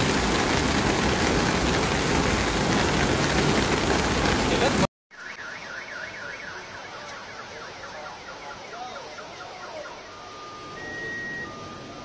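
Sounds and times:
rain hissing: 0.0 - 4.9
car alarm wailing tone: 5.1 - 12.0
car alarm warbling: 5.1 - 12.0
steady alarm tones: 5.3 - 12.0.

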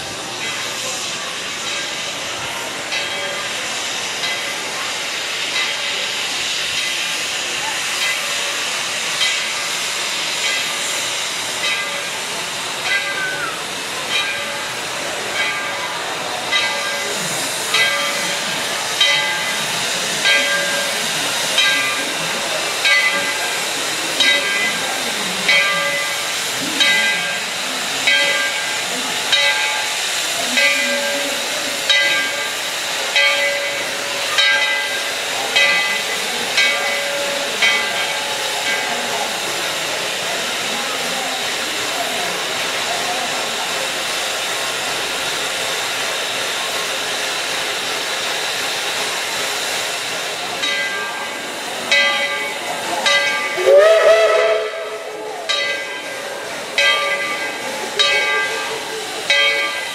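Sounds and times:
steam air pump beating: 0.0 - 59.9
steam hissing: 0.0 - 59.9.

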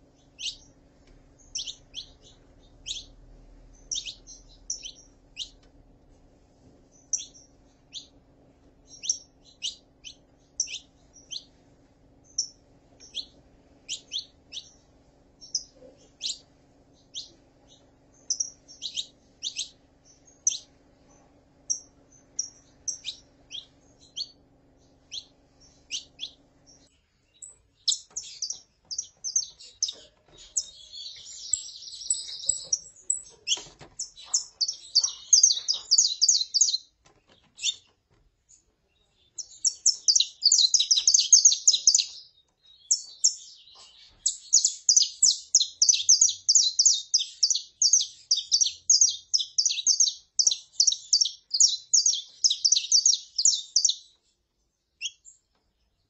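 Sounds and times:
finch short calls: 0.2 - 0.7, 1.4 - 3.2, 3.8 - 5.6, 8.9 - 11.5, 15.4 - 16.4, 17.0 - 20.7, 27.4 - 37.9.

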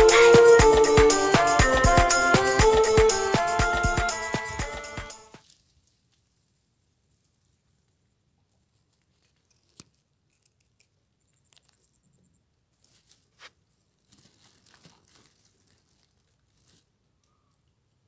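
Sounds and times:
rustling and crackling dry soil: 5.4 - 18.0.

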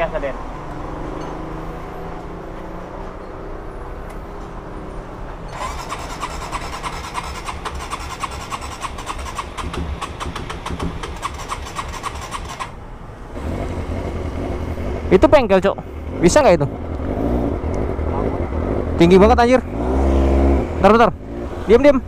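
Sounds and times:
electric starter cranking engine: 5.5 - 12.8.

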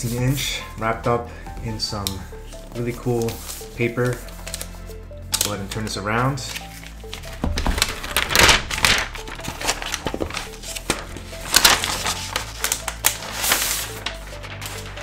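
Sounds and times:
background music: 0.0 - 15.0
paper wrap rustling: 5.4 - 15.0.

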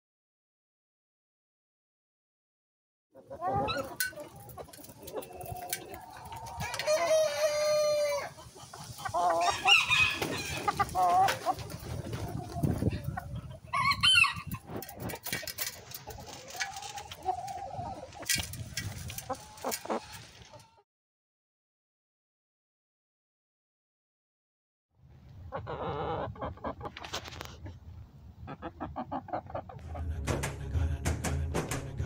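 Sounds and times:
hens clucking: 3.2 - 20.8, 25.5 - 30.4.

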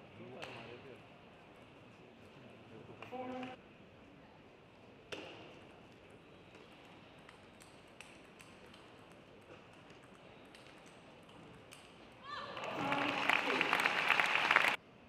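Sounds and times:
faint hall background: 0.0 - 15.0
ping pong ball clicking: 6.5 - 12.1.

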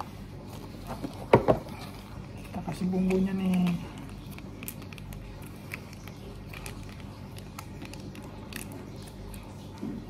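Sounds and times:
steady low hum: 0.0 - 10.0
plastic sachet crinkling: 0.2 - 10.0.

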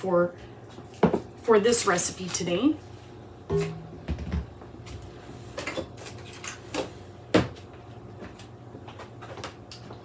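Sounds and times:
low steady hum: 1.4 - 8.3.

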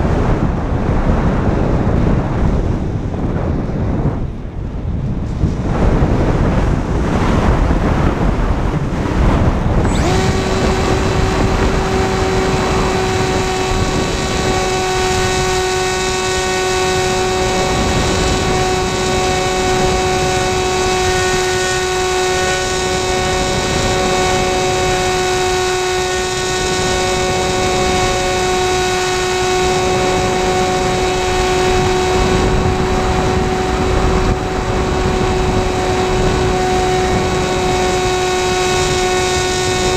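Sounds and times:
electric motor and propeller whine: 0.0 - 39.9
wind rushing over microphone: 0.0 - 39.9.

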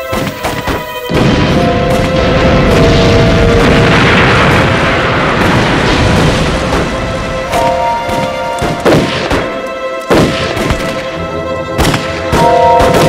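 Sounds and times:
dramatic background music: 0.0 - 13.0
explosion in water: 2.2 - 7.1
rifle shots: 7.5 - 11.1, 11.8 - 13.0.

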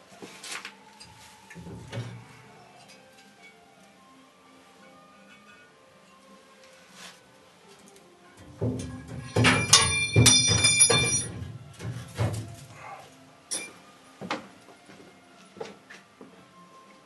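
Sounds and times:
scattered knocks and crackles: 8.4 - 12.6.

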